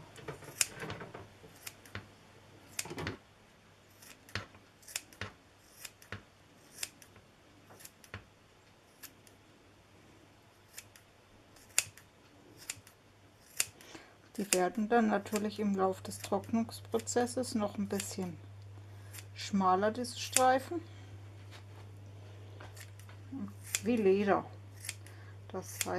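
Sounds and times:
scissors snipping: 1.6s - 2.0s, 4.0s - 7.1s, 11.6s - 12.0s, 12.6s - 13.8s, 20.3s - 20.6s, 22.8s - 24.0s, 25.7s - 25.9s.

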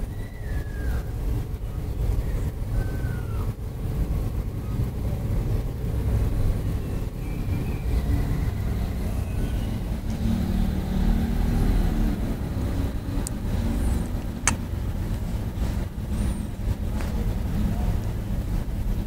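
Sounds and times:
engine hum: 0.0s - 19.0s
motor vehicle rumble: 0.0s - 19.0s.

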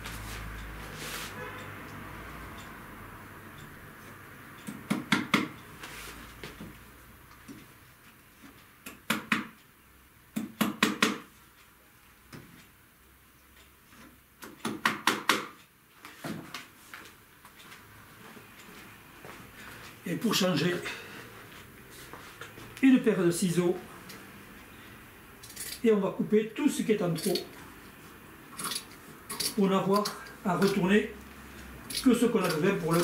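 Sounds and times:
tack hammer tapping tacks: 4.6s - 5.6s, 8.8s - 9.6s, 10.3s - 11.3s, 14.4s - 15.6s.

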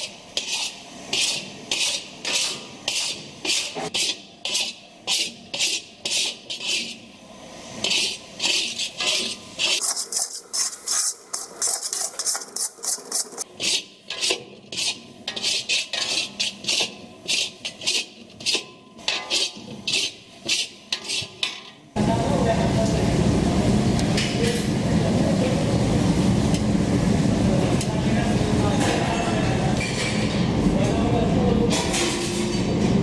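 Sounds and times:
metal spatula scraping wok: 0.0s - 21.6s.

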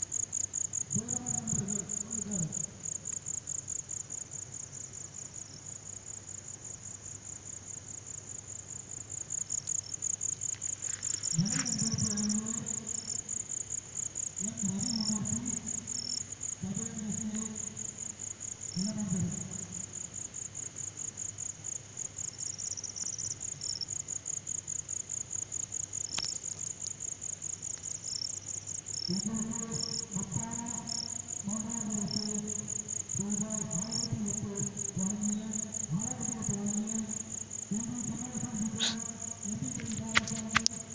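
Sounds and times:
crickets chirring: 0.0s - 40.9s
short low calls: 37.8s - 40.7s.

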